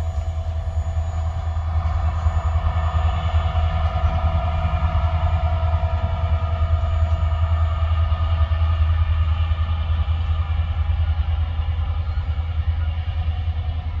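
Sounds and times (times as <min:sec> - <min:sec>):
high steady tones: 0:00.0 - 0:09.4
freight train rumbling past: 0:00.0 - 0:14.0.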